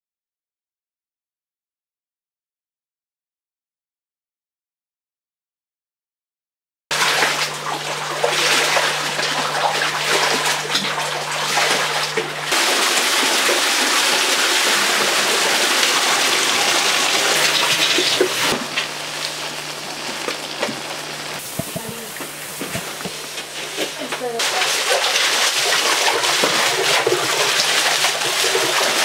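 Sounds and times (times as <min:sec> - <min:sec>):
liquid pouring into metal drum: 0:06.9 - 0:29.0.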